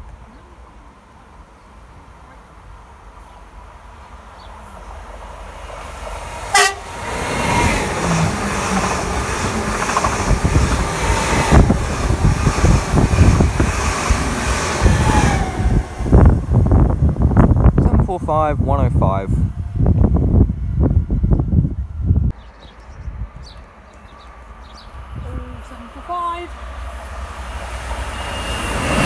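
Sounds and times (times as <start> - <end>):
train wheels rumbling on rail: 0.0 - 29.0
train horn toot: 6.5 - 6.9.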